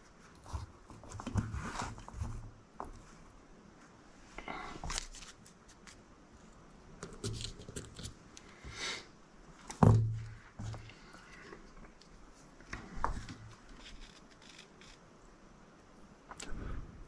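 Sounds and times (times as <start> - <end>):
hands rustling small parts: 4.7 - 6.1, 6.9 - 8.6.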